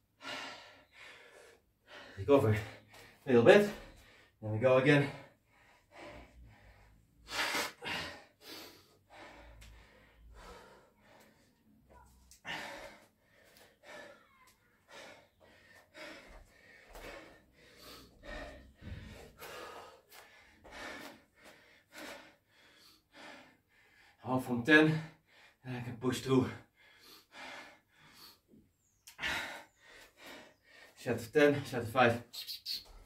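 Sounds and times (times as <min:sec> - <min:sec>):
man breathing hard: 0:00.0 - 0:04.4, 0:05.0 - 0:24.2, 0:26.4 - 0:31.8.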